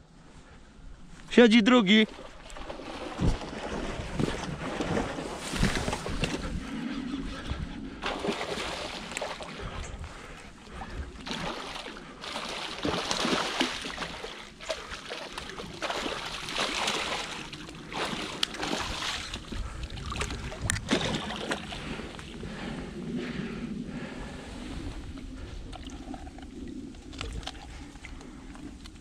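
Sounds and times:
fish thrashing and splashing: 2.1 - 6.6, 8.0 - 22.4.

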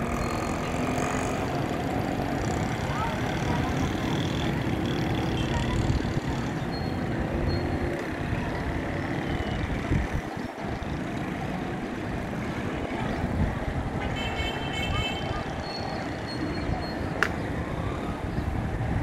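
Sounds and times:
rumble of vehicles on busy road: 0.0 - 19.0.

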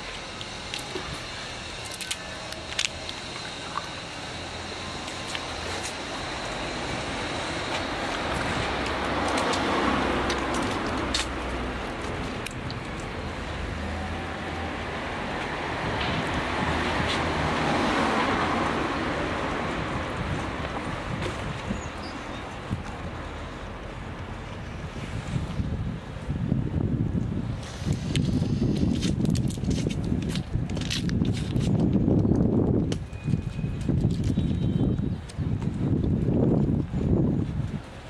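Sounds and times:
cars passing: 0.0 - 28.4.

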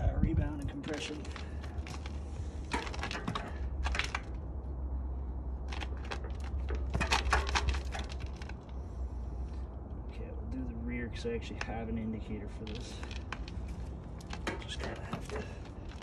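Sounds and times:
steady low rumble: 0.0 - 16.0
bike metallic clicking and rattling: 0.5 - 4.5, 5.6 - 9.6, 12.6 - 16.0.

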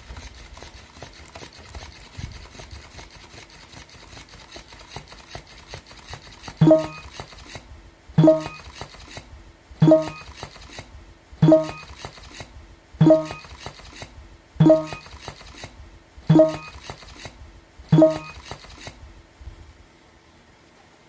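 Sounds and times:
toy clattering jolt: 0.0 - 7.6, 8.2 - 9.2, 11.4 - 15.7, 16.3 - 17.3, 17.9 - 18.9.

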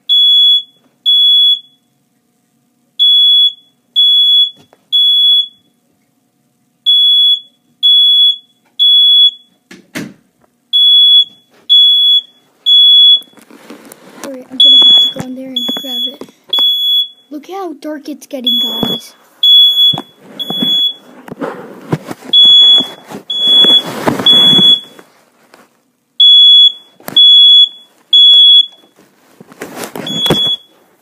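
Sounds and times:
smoke alarm beeping: 0.1 - 1.9, 3.0 - 5.8, 6.8 - 9.6, 10.7 - 13.4, 14.6 - 17.4, 18.4 - 21.1, 22.3 - 25.0, 26.2 - 29.0, 30.0 - 30.8
rustling: 13.2 - 15.2, 19.0 - 25.9, 28.8 - 31.0.

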